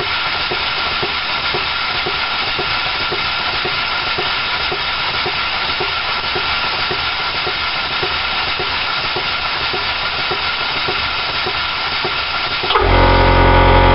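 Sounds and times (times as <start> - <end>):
air engine exhaust hissing: 0.0 - 13.9
loud low machine hum: 12.6 - 13.9.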